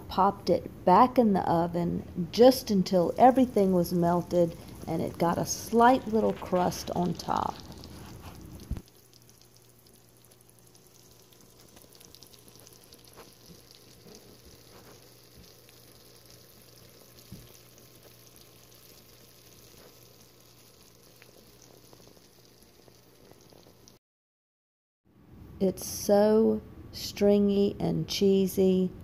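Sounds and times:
low steady hum: 0:00.0 - 0:24.0
food sizzling and crackling: 0:02.6 - 0:24.0.

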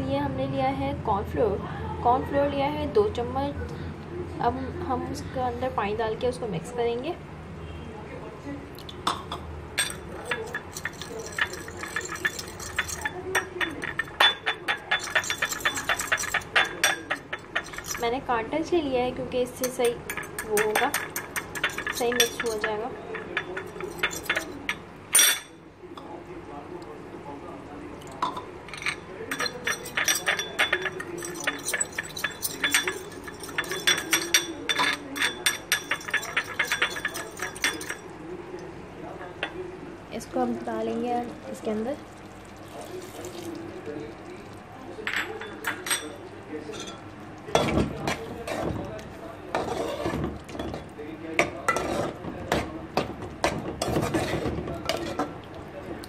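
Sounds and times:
fork clinking against ceramic bowl: 0:09.1 - 0:18.1, 0:19.6 - 0:25.6, 0:28.0 - 0:38.1, 0:45.0 - 0:48.9.

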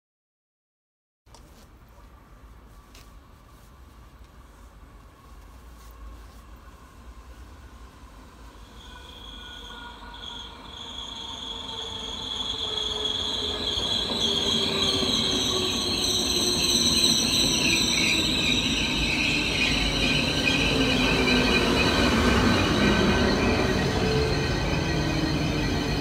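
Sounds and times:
electric train rumble and wheel noise: 0:01.3 - 0:26.0.

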